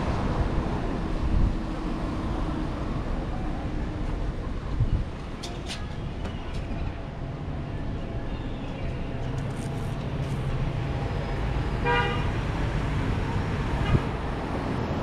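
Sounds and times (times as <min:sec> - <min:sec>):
street traffic rumble: 0:00.0 - 0:15.0
car horn toot: 0:11.8 - 0:12.3.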